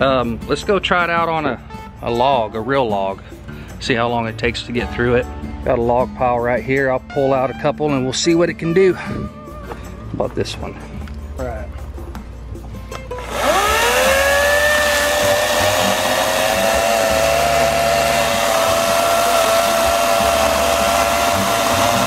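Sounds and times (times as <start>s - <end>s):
electric chainsaw cutting log: 13.1s - 22.0s.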